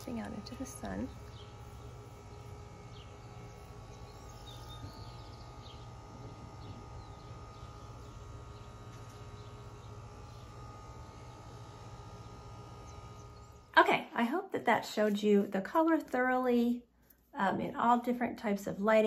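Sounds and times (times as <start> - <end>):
faint bird chirps: 1.1 - 6.0.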